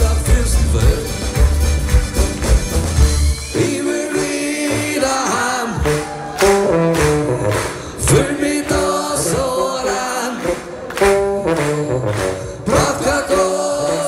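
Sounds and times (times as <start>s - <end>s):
low bass: 0.0s - 3.4s, 10.5s - 12.9s
guitars playing: 0.0s - 14.0s.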